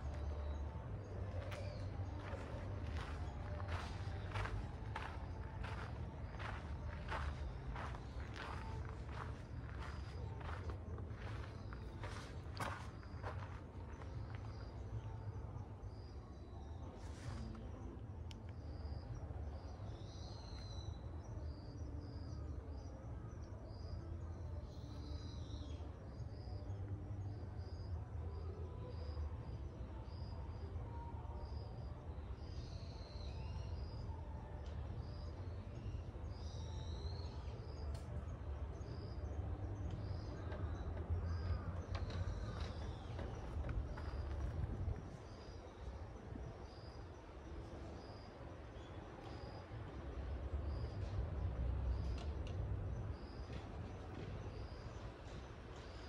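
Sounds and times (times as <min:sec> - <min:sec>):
steady low rumble: 0:00.0 - 0:16.1
low rumble on microphone: 0:37.2 - 0:47.0.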